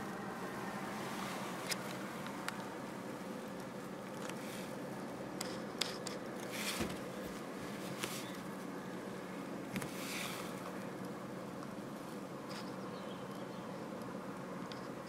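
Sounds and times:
low steady hiss: 0.0s - 15.0s.

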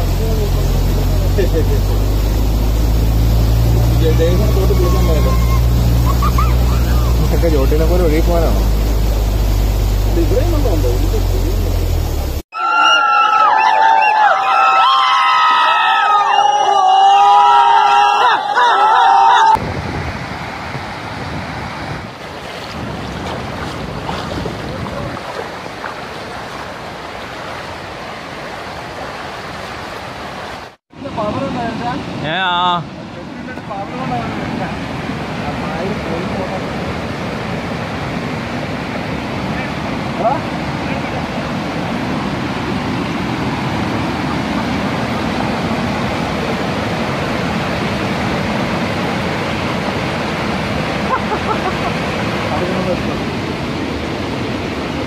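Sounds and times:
floodwater rushing over weir: 0.0s - 12.8s, 17.2s - 55.0s
wind noise on microphone: 19.6s - 25.7s.

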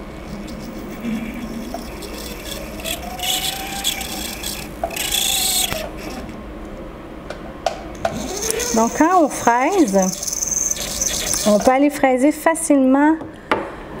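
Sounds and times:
bur grinding and scraping metal: 0.0s - 6.3s, 8.1s - 11.8s
faint rotary tool whine: 0.0s - 6.3s, 8.0s - 11.9s.

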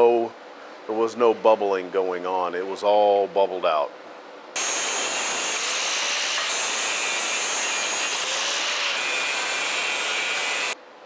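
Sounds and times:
chop saw grinding through metal: 4.6s - 10.8s.

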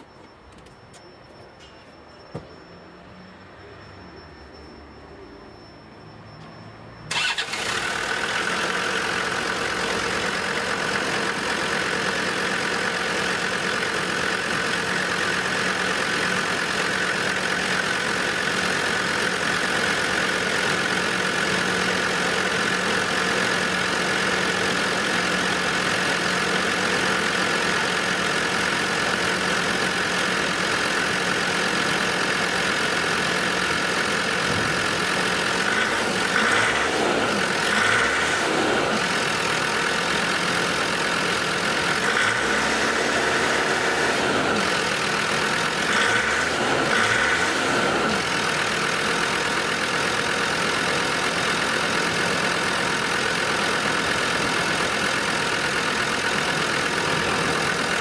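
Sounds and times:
diesel engine starting and idling: 6.6s - 58.0s.

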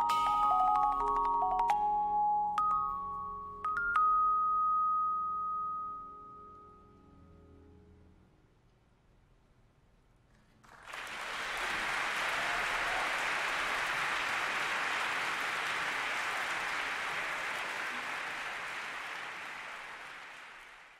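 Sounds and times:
audience applauding: 10.6s - 20.9s.

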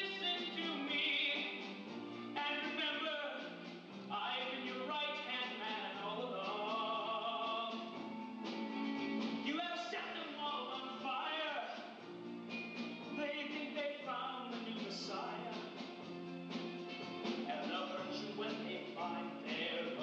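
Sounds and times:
person singing: 0.0s - 1.7s, 2.4s - 8.2s, 17.3s - 20.0s
rock band playing: 14.6s - 20.0s.

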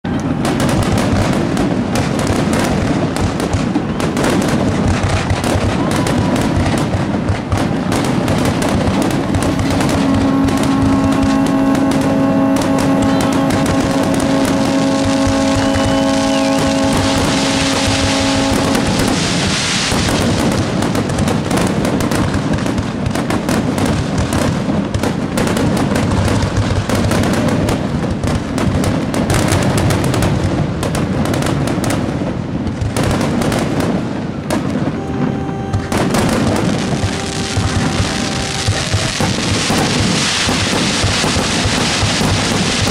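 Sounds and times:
fireworks bangs and crackles: 0.0s - 42.9s.

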